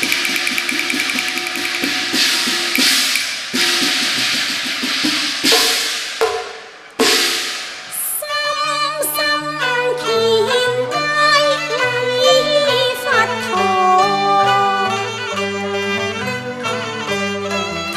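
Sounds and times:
wood block ticking: 0.0 - 3.4
gong and cymbal crashes: 0.0 - 4.4.

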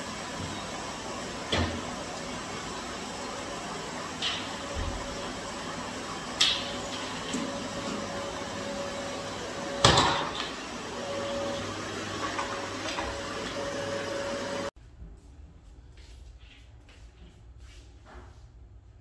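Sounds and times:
vacuum cleaner running: 0.0 - 14.8.

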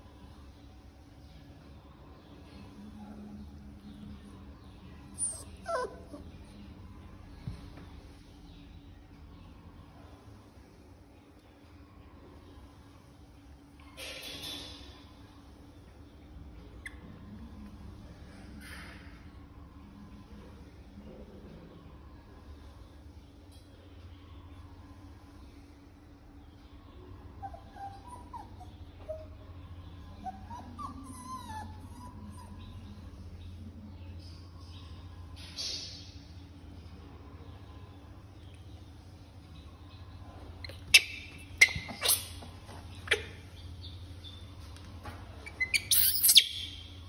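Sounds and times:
low steady hum and hiss: 0.0 - 47.0
young animal whimpering squeaks: 5.1 - 6.6, 27.4 - 29.4, 30.0 - 33.0, 40.6 - 44.4, 45.4 - 47.0.

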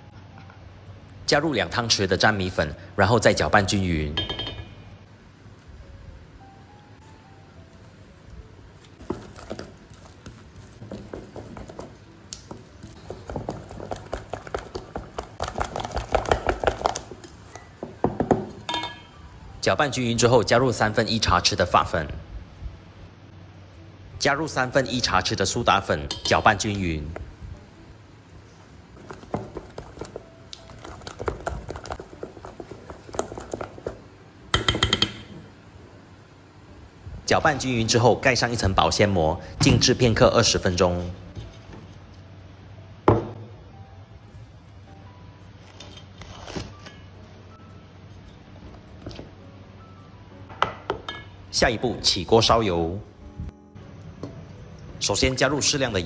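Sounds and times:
spoon stirring batter in metal bowl: 29.0 - 34.0.

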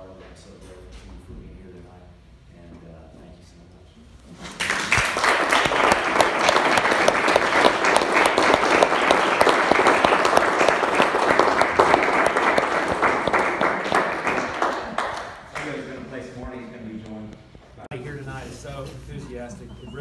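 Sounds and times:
audience applauding: 4.6 - 15.9.

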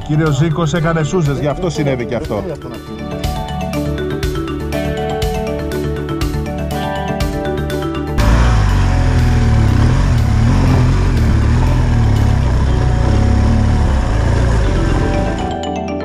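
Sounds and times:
motorcycle engine running: 8.2 - 15.6.

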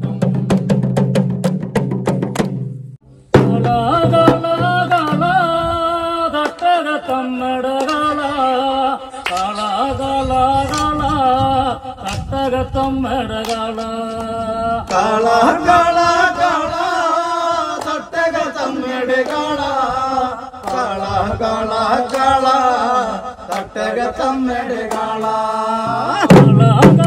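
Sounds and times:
barrel drum beats: 0.0 - 5.8, 25.8 - 27.0
men chanting a folk song: 3.4 - 27.0.

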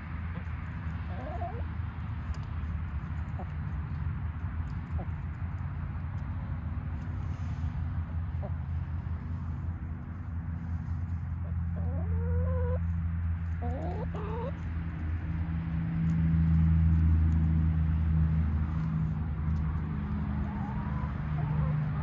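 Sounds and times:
chickens calling: 0.3 - 1.6, 8.2 - 8.8, 11.4 - 12.9, 13.5 - 14.6, 20.2 - 22.0.

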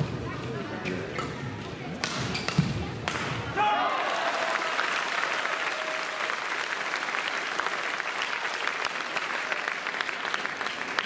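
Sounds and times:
crowd applauding: 3.8 - 11.0.

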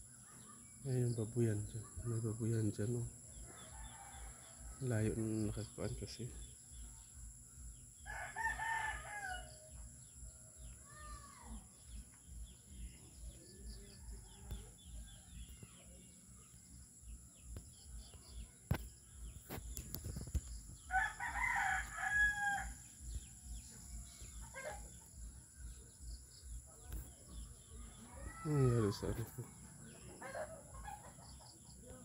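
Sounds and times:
rooster crowing: 3.5 - 4.8, 8.1 - 9.7, 20.9 - 22.8
small bird chirps: 10.1 - 21.0.

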